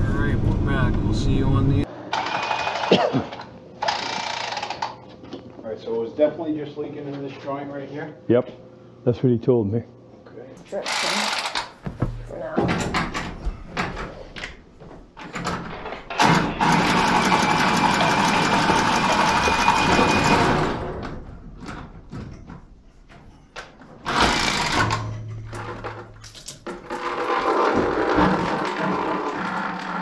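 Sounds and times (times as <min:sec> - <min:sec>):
handheld power tool running: 0:02.1 - 0:02.9, 0:03.8 - 0:05.0, 0:10.8 - 0:11.8, 0:16.2 - 0:20.8.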